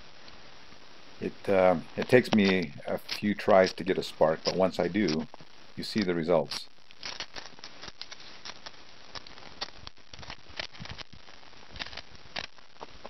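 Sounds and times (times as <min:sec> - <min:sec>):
steady hiss: 0:00.0 - 0:13.0
tinder crackling as it burns: 0:00.0 - 0:13.0.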